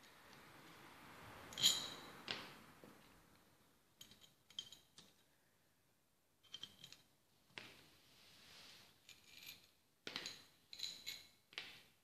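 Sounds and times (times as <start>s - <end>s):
metal parts clinking on a table: 1.5s - 2.1s, 4.0s - 5.2s, 6.4s - 7.1s, 9.1s - 11.4s.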